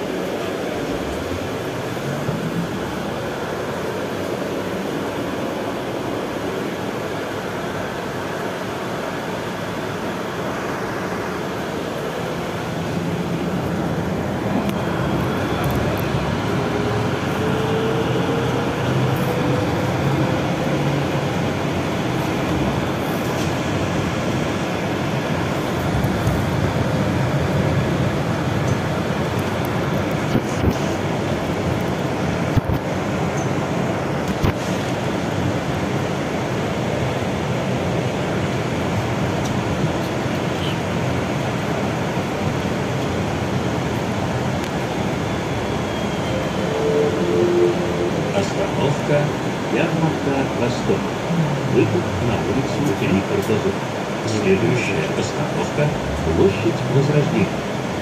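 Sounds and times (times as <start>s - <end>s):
bus running and tyre noise: 0.0s - 58.0s
rising electric drive whine: 45.0s - 49.6s.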